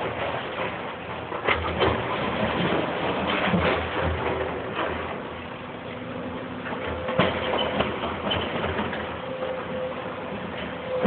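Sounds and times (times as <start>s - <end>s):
knocks and clanks of rubble: 0.0s - 5.5s, 6.6s - 11.0s
excavator engine running: 0.0s - 11.0s.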